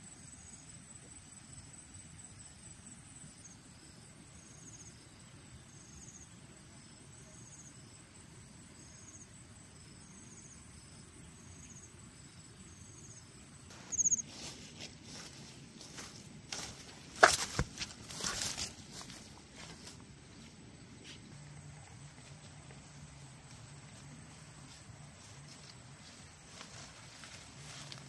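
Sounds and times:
insect chirping: 0:00.0 - 0:28.0
steps through grass and leaves: 0:13.7 - 0:28.0.

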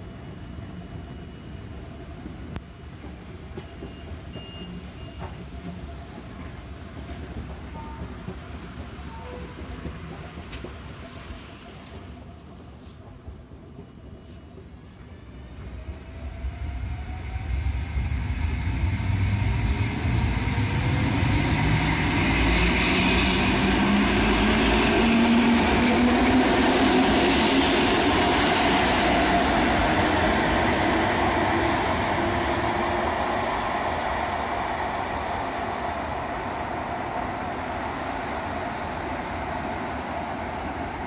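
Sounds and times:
train rolling noise: 0:00.0 - 0:41.0
train whine rising in pitch: 0:15.0 - 0:41.0.

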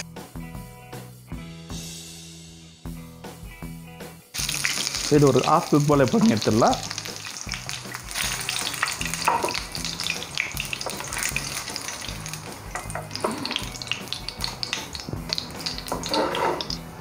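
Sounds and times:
oil sizzling and popping in pan: 0:04.3 - 0:16.9.

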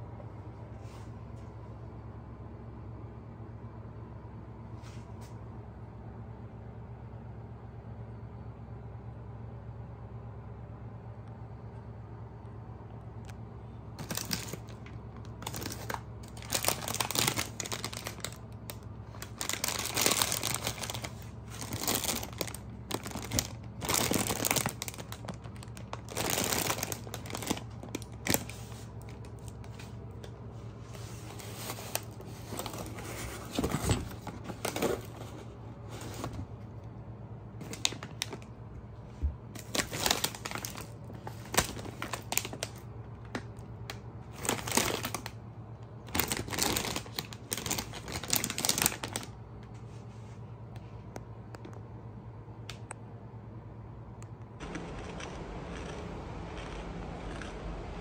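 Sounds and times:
plastic packets crinkling: 0:14.0 - 0:30.3, 0:31.2 - 0:35.4, 0:37.6 - 0:38.6, 0:39.6 - 0:45.4, 0:46.0 - 0:49.4.

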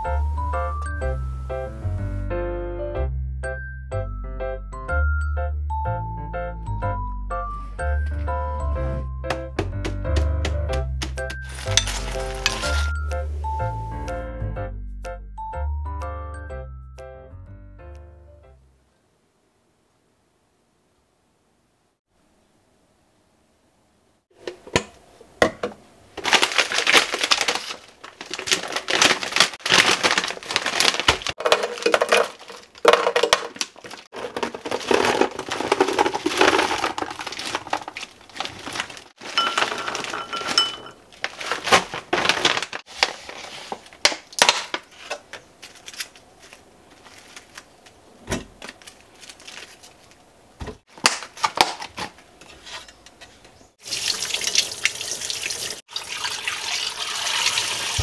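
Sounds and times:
plastic packaging rustling: 0:11.3 - 0:13.0, 0:26.1 - 0:52.8
frozen berries knocking in plastic jar: 0:28.3 - 0:40.7.

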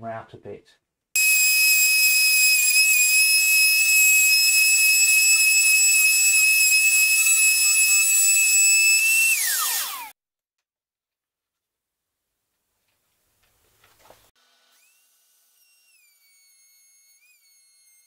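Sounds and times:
router high-pitched whine: 0:01.2 - 0:10.1, 0:14.7 - 0:18.0
router motor spinning down: 0:01.2 - 0:10.2, 0:14.7 - 0:18.0.

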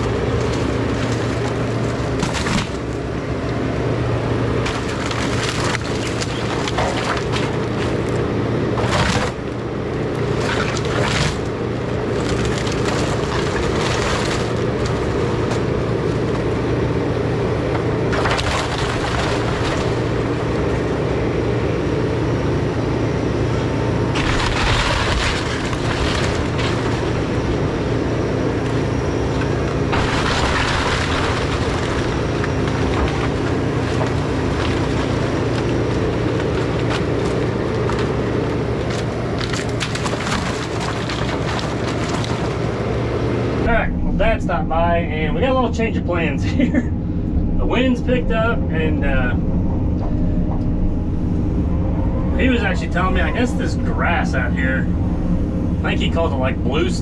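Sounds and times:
excavator diesel engine running: 0:00.0 - 0:57.0
timber cracking and crashing down: 0:00.4 - 0:02.9, 0:12.2 - 0:15.0, 0:24.2 - 0:27.1, 0:29.9 - 0:38.1.

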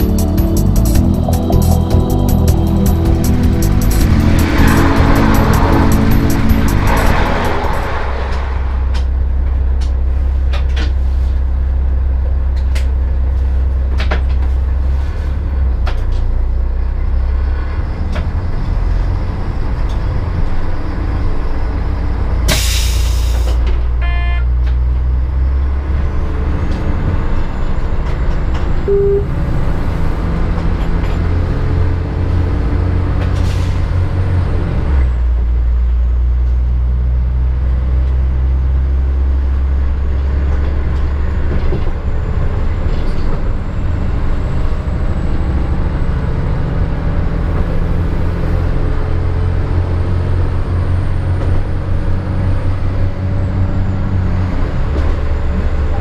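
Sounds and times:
diesel engine droning: 0:00.0 - 0:56.0
quick beeps: 0:28.9 - 0:29.5.

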